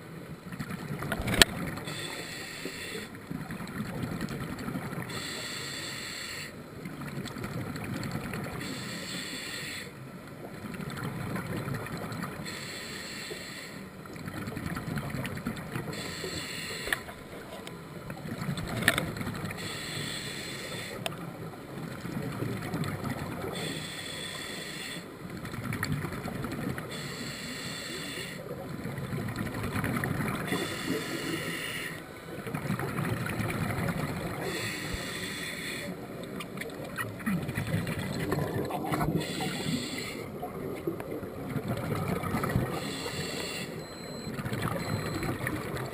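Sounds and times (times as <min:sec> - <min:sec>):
scuba regulator inhalation hiss: 0:01.9 - 0:03.1, 0:05.1 - 0:06.6, 0:08.6 - 0:10.0, 0:12.4 - 0:13.8, 0:15.9 - 0:17.1, 0:19.6 - 0:21.0, 0:23.6 - 0:25.1, 0:26.9 - 0:28.4, 0:30.5 - 0:32.0, 0:34.4 - 0:36.0, 0:39.2 - 0:40.3, 0:42.8 - 0:43.8
exhaled bubbles burbling: 0:36.8 - 0:39.6, 0:40.3 - 0:42.8.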